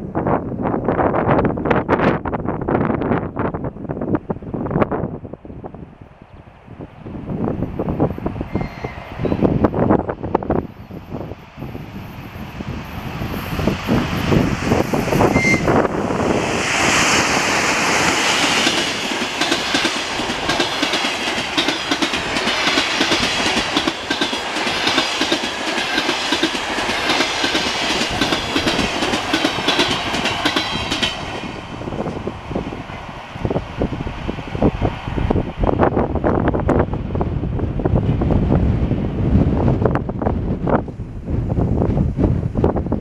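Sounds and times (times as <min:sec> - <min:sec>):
electric locomotive passing: 0:00.8 - 0:43.0
train wheels clattering on rails: 0:16.6 - 0:32.2.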